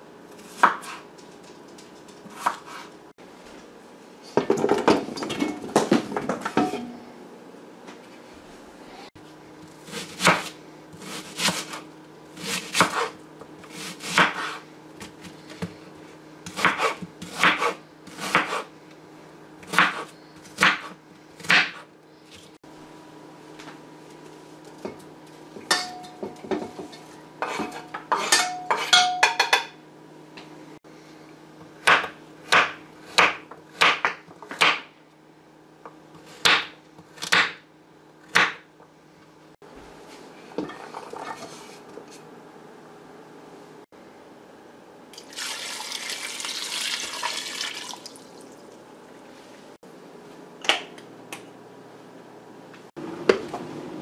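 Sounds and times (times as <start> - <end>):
knife chopping on wooden board: 0.6 - 1.0, 9.9 - 11.8, 12.4 - 15.8, 16.5 - 18.7, 19.7 - 21.9, 31.8 - 34.9, 36.4 - 37.6, 38.3 - 38.7.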